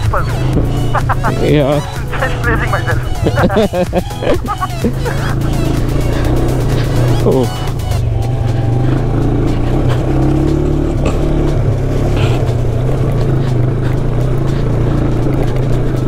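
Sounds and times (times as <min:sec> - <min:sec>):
motorcycle engine running at low revs: 0:00.0 - 0:16.0.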